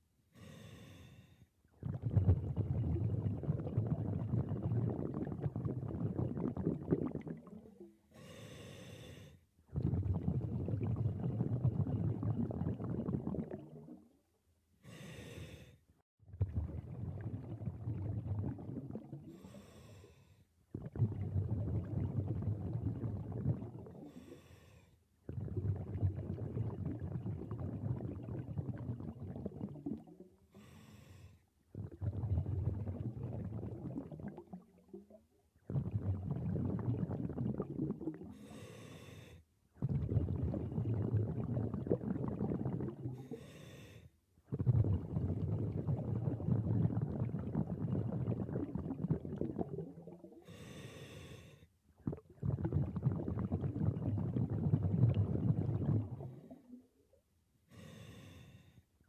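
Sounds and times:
regulator inhale hiss: 0.4 - 1.5, 8.1 - 9.4, 14.8 - 15.8, 19.3 - 20.4, 24.1 - 25.0, 30.5 - 31.4, 38.4 - 39.4, 43.2 - 44.1, 50.4 - 51.7, 57.7 - 58.8
exhaust bubbles burbling: 1.7 - 7.9, 9.7 - 14.2, 16.2 - 19.4, 20.7 - 24.2, 25.2 - 30.4, 31.7 - 38.4, 39.8 - 43.2, 44.4 - 50.6, 52.0 - 57.0.

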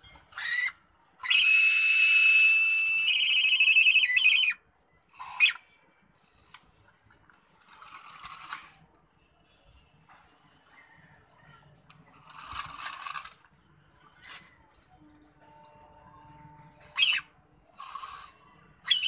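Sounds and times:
small electric motors whining: 0.0 - 6.6, 7.6 - 8.8, 12.1 - 13.4, 16.7 - 19.0.

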